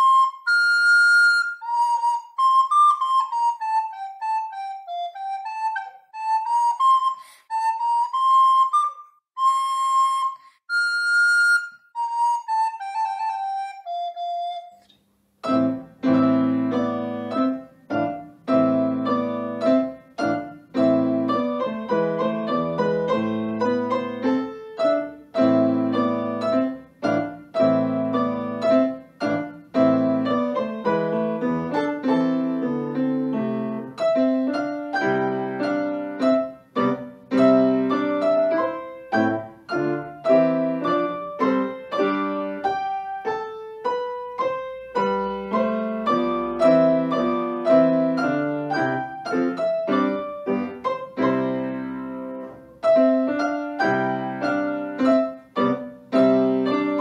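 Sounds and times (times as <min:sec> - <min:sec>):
recorder melody: 0:00.0 - 0:57.0
piano rhythmic chords: 0:15.3 - 0:57.0.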